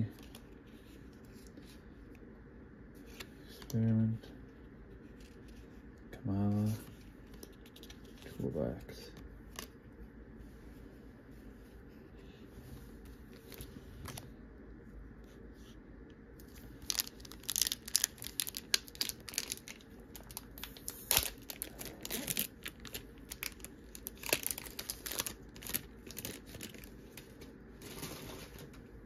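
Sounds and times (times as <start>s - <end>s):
foil wrapper crinkling and tearing: 16.5s - 28.5s.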